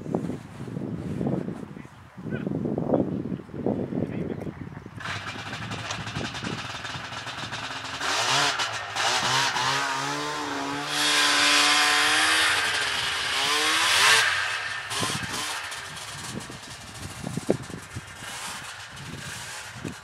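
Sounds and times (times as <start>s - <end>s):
small petrol engine revving: 5.0s - 20.0s.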